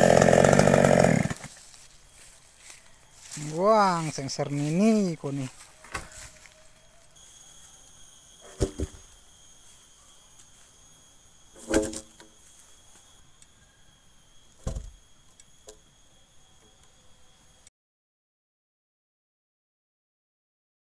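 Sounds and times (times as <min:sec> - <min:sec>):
high thin insect drone: 0:00.2 - 0:17.7
wooden knocks and thuds: 0:08.6 - 0:09.0, 0:14.6 - 0:15.0.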